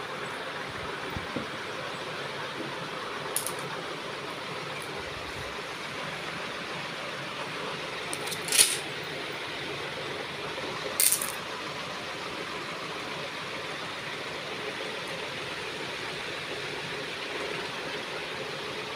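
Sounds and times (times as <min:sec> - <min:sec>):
stone beads clattering onto magnet: 0:03.4 - 0:03.7, 0:08.1 - 0:08.8, 0:11.0 - 0:11.4.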